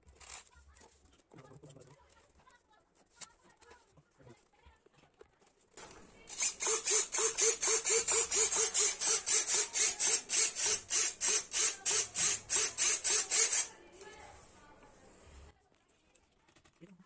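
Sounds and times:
rhythmic scraping strokes: 0:05.8 - 0:15.5.

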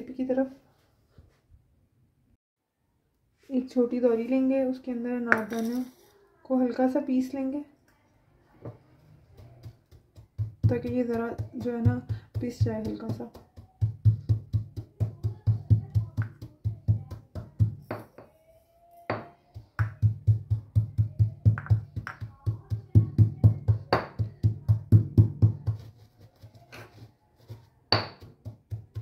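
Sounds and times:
pestle pounding in stone mortar: 0:09.3 - 0:18.2, 0:19.1 - 0:25.9, 0:27.9 - 0:29.0.

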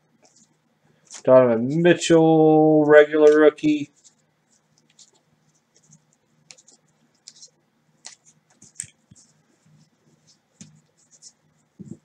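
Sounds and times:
cards sliding against each other: 0:05.8 - 0:09.4.

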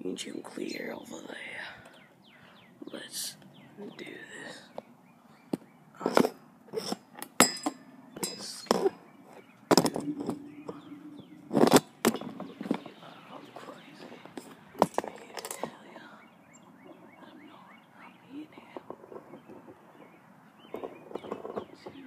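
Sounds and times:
low steady hum: 0:00.0 - 0:22.0
light metallic clinks: 0:07.4 - 0:08.9.

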